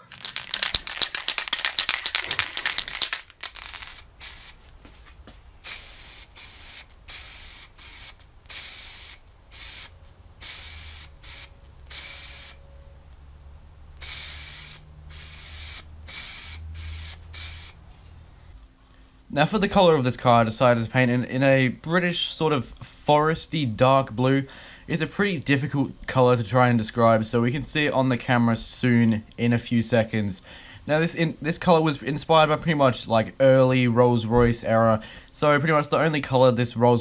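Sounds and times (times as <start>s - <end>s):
spray can rattling: 0.0s - 4.6s, 5.6s - 12.6s, 14.0s - 17.8s
spray can hissing bursts: 0.7s - 4.6s, 5.6s - 12.6s, 14.0s - 17.8s.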